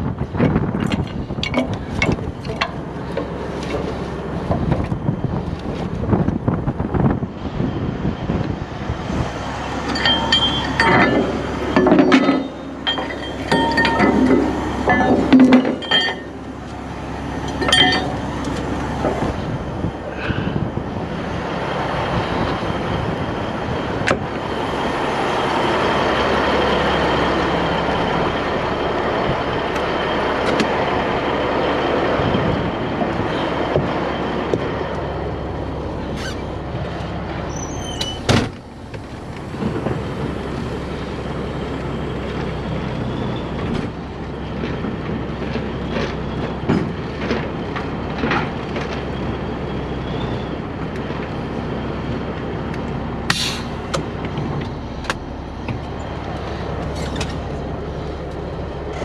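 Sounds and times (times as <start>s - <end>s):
steady low rumbling: 0.0s - 59.0s
metal clanking and clinking: 0.8s - 3.9s, 9.8s - 19.4s
sharp ringing knocks: 9.9s - 16.4s, 17.4s - 18.3s.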